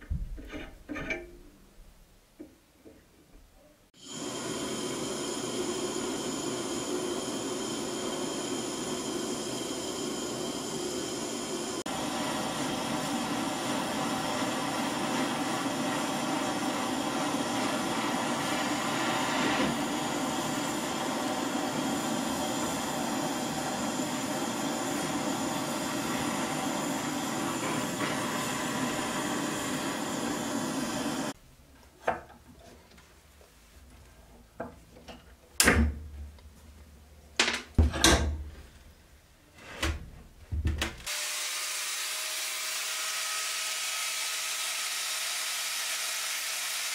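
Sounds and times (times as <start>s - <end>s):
metal clanks and knocks: 0.0s - 1.6s, 37.4s - 38.5s
blowtorch flame roaring: 4.0s - 31.4s.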